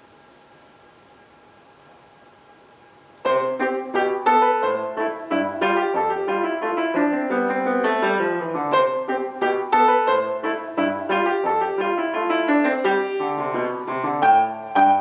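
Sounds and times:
classical piano piece: 3.2 - 15.0.

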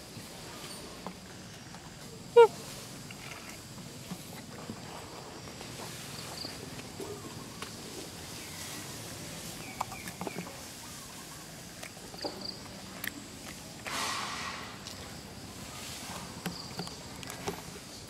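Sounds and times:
faint bird calls: 2.2 - 3.6.

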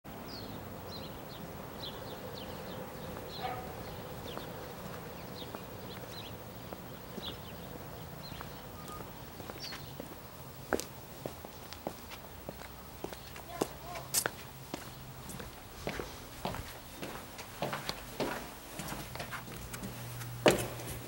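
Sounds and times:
small birds chirping: 0.1 - 17.4
steady low hum: 14.6 - 21.0.

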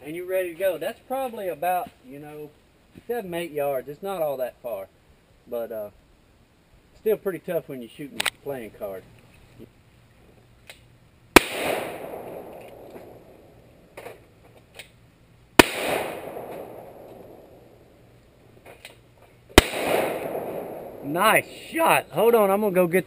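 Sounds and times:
revolver shots echoing: 11.4 - 13.6, 15.6 - 17.8, 19.5 - 21.6.

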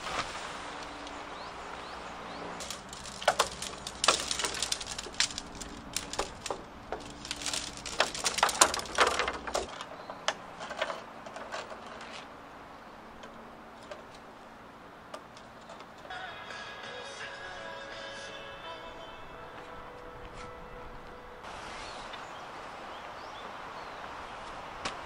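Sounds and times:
tent poles clattering and clicking: 0.0 - 16.2.

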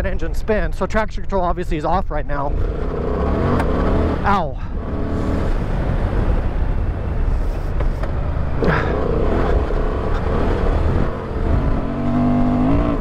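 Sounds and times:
motorcycle engine revving: 2.5 - 6.5, 8.5 - 13.0.

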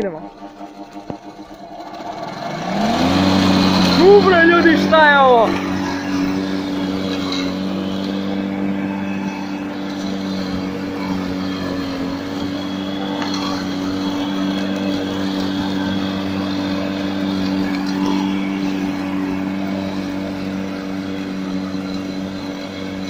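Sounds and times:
electric lawn mower humming: 0.0 - 23.0.

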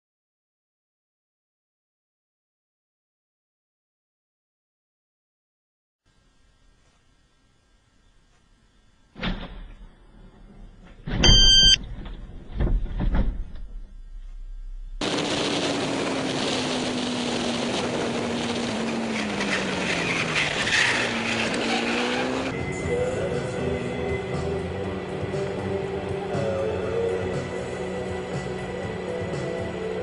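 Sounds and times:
car engine and road noise: 10.8 - 30.0
brief beep: 11.2 - 11.8.

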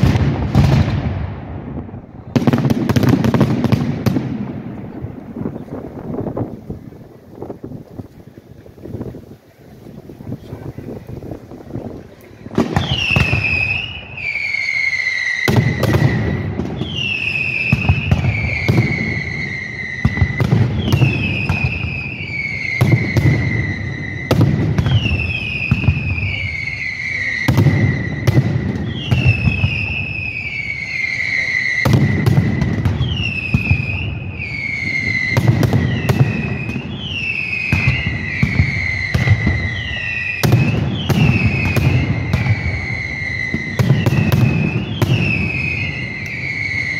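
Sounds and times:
low rumbling booms: 0.0 - 13.7.

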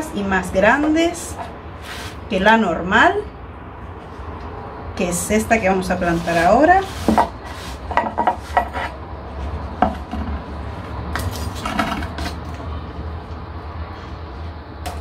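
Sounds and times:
scoop scraping grit in pot: 5.8 - 9.0.

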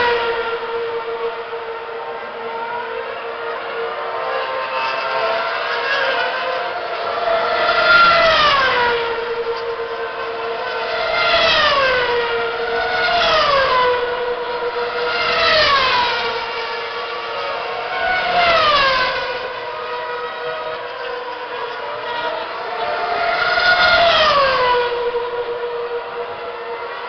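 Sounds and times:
racing cars passing at high revs: 0.0 - 27.0
steady engine drone: 0.0 - 27.0.

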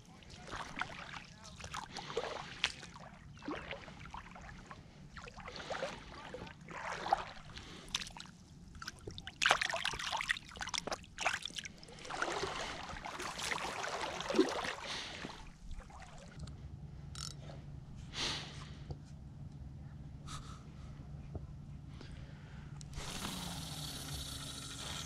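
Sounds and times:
water splashing and sloshing: 0.0 - 17.6.

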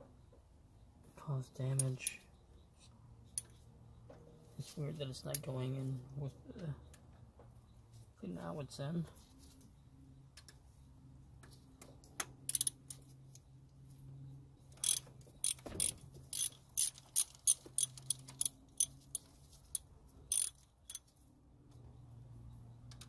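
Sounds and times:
ratchet wrench clicking: 12.5 - 13.0, 14.8 - 21.1.

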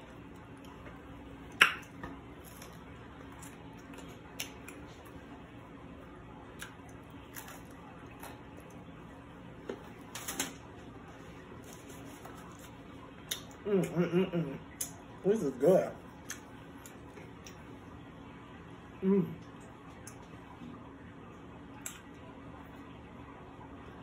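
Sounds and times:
steady low hum: 0.0 - 24.0
crispy food crack: 6.5 - 8.8
mouth clicks of chewing: 13.2 - 14.0.

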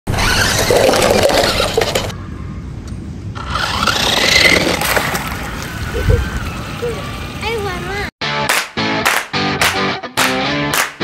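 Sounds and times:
toy car motor whirring: 0.1 - 2.1, 3.4 - 4.9.

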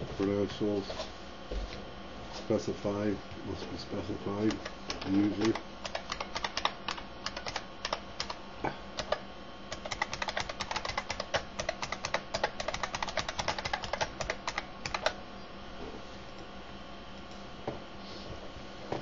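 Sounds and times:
computer keyboard typing: 4.4 - 8.4, 9.0 - 15.2.

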